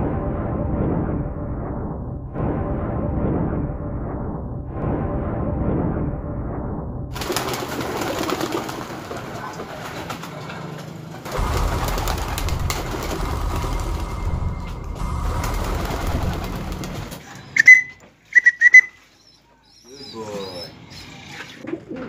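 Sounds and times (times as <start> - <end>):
intro music: 0.0 - 7.6, 11.3 - 17.2
low rumble: 0.0 - 7.8, 11.3 - 17.3
pigeons cooing: 19.9 - 22.0.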